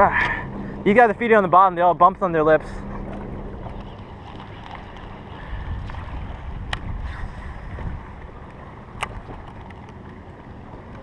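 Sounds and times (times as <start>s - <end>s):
low wind rumble on microphone: 0.0s - 11.0s.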